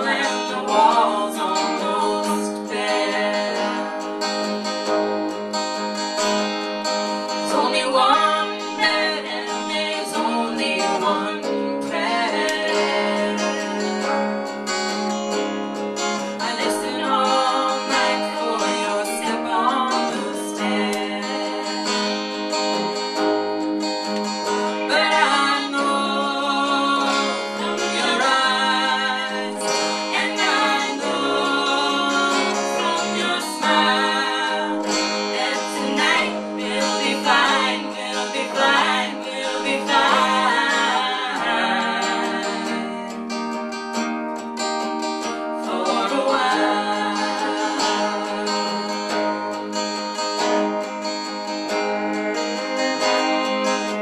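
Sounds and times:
group singing: 0:00.0 - 0:05.3, 0:07.2 - 0:15.0, 0:16.0 - 0:23.0, 0:24.4 - 0:43.7, 0:45.2 - 0:50.7
strummed acoustic guitar: 0:00.0 - 0:54.0.

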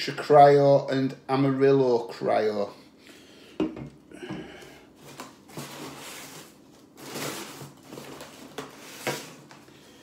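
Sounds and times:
cardboard rustling and scraping: 0:05.0 - 0:09.7.

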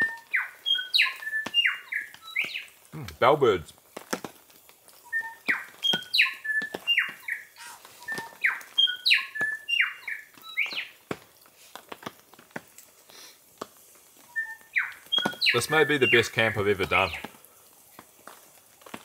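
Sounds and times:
birds singing: 0:00.0 - 0:02.9, 0:05.0 - 0:11.0, 0:14.2 - 0:17.4.

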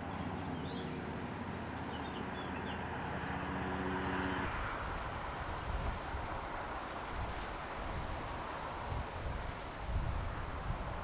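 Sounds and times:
wind rumbling on microphone: 0:04.4 - 0:11.0.

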